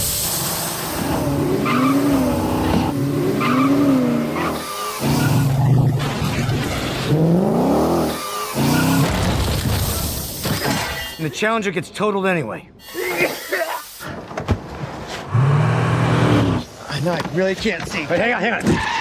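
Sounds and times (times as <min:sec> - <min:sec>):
car engines revving: 0:00.2 - 0:09.4, 0:15.3 - 0:16.8
tyres squealing: 0:01.6 - 0:05.7, 0:18.2 - 0:19.0.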